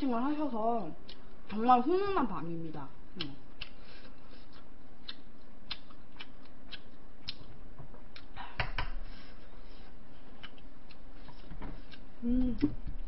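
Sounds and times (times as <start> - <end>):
eating clicks: 4.5 - 7.5.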